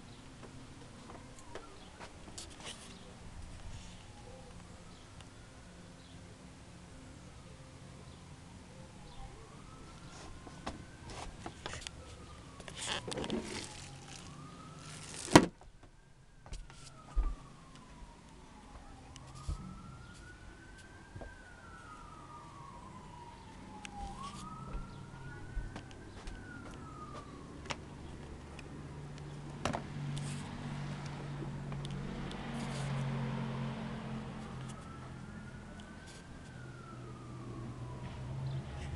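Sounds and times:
low rumble with hiss: 0.0s - 32.6s
siren wailing: 1.0s - 2.1s, 8.7s - 29.4s, 30.0s - 38.9s.

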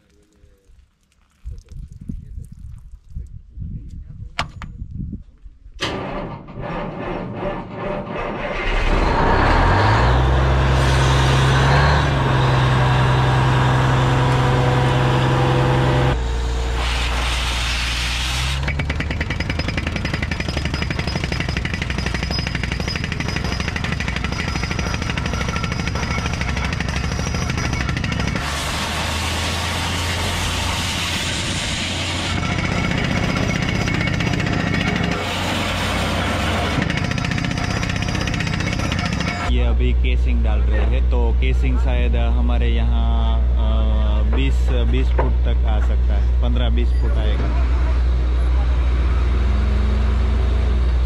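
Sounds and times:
drilling rig engine running: 5.8s - 51.0s
air hammer pounding: 16.8s - 39.5s.

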